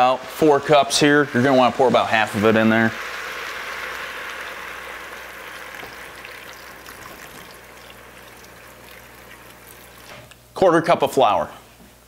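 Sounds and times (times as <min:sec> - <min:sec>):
liquid pouring into a pot: 0:01.1 - 0:10.3.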